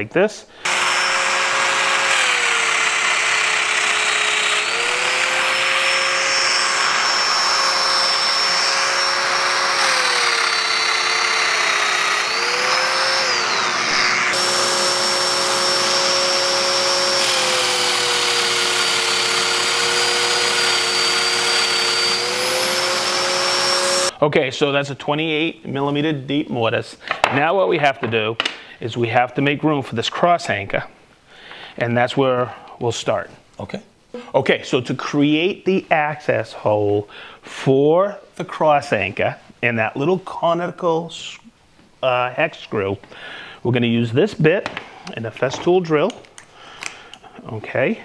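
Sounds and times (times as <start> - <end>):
power joiner cutting wood: 0.6 - 24.2
dust extractor running: 0.7 - 24.1.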